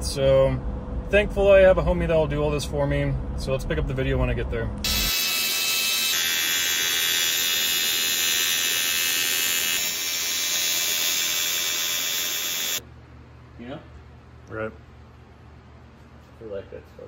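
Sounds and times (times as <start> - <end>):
welding arc buzzing: 4.8 - 12.8.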